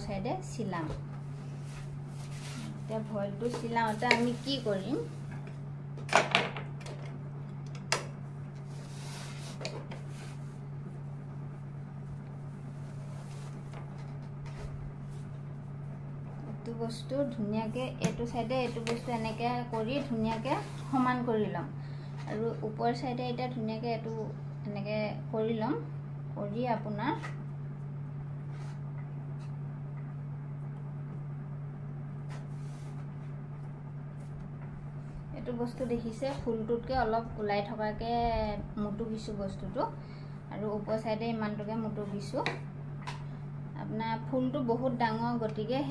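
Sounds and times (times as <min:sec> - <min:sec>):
steady low hum: 0:00.0 - 0:45.9
cloth being smoothed by hand: 0:01.3 - 0:02.9, 0:08.7 - 0:10.6, 0:32.3 - 0:33.3.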